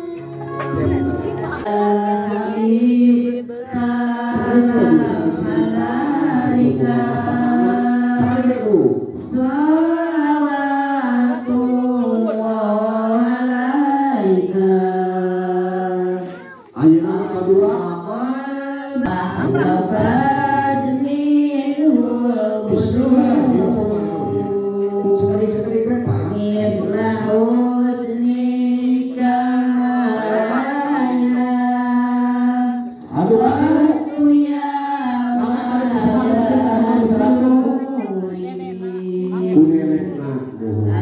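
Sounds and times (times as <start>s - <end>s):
woman singing slow melody: 0.0s - 8.2s, 9.3s - 16.7s, 23.9s - 25.1s, 26.8s - 33.0s, 34.0s - 39.6s.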